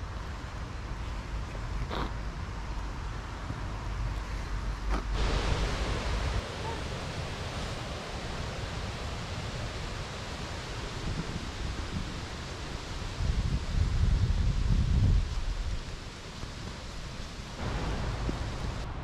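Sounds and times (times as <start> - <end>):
steady outdoor hiss: 0.0 - 19.0
wind buffeting microphone: 2.4 - 19.0.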